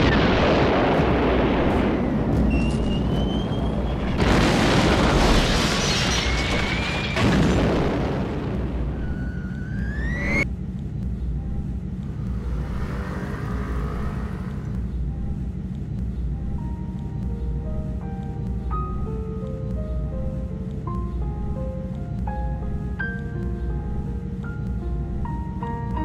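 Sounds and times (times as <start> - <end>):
heavy booms and blasts: 0.0 - 10.4
low rumble: 7.2 - 20.6
faint musical tones: 8.8 - 26.0
whistling tones rising in pitch: 9.1 - 10.4.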